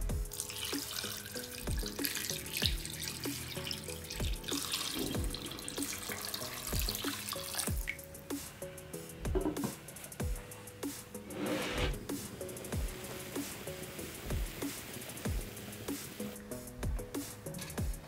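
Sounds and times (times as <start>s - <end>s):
electronic music with a beat: 0.0s - 18.0s
water pouring into a pot: 0.3s - 8.0s.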